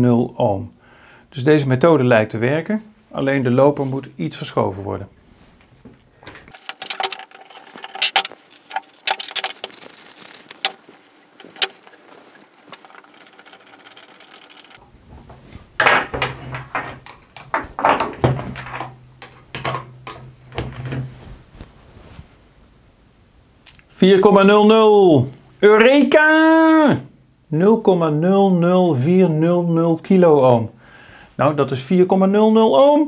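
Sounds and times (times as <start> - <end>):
sharp metal clicks: 6.5 - 14.8
metal scraping: 6.5 - 21.2.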